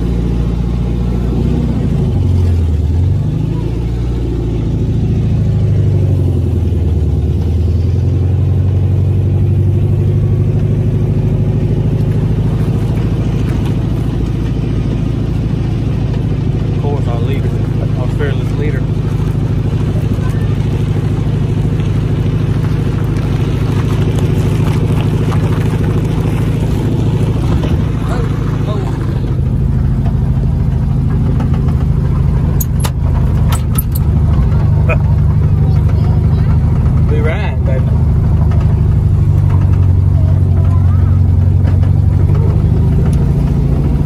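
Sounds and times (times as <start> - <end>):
car engine running: 0.0 - 44.0.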